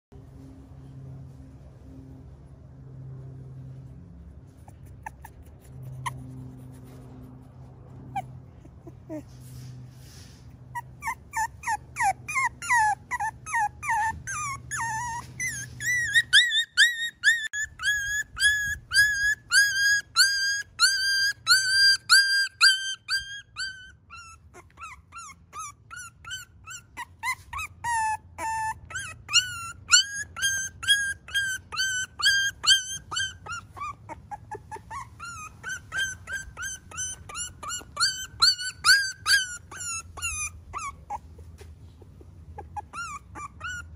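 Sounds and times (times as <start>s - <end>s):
puppy crying in high squeals: 4.6s - 6.4s, 8.0s - 9.5s, 10.6s - 43.9s.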